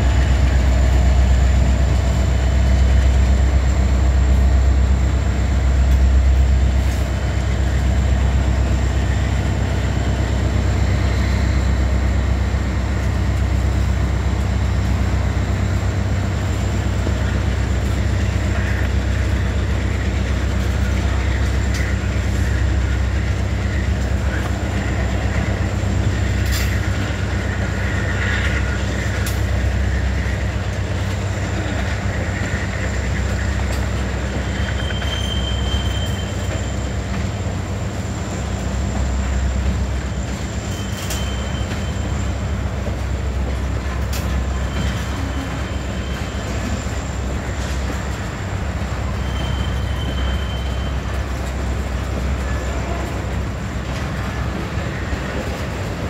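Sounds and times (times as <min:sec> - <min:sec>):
freight train rumbling past: 0:00.0 - 0:56.0
wheel squeal: 0:31.6 - 0:37.5, 0:40.1 - 0:42.5, 0:44.1 - 0:48.2, 0:48.8 - 0:51.5.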